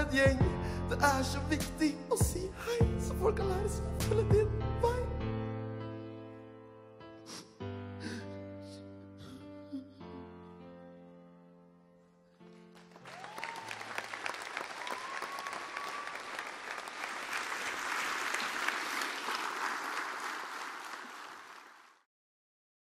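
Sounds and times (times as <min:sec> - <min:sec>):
audience applauding: 0:12.5 - 0:22.1
long calls from audience: 0:13.0 - 0:21.8.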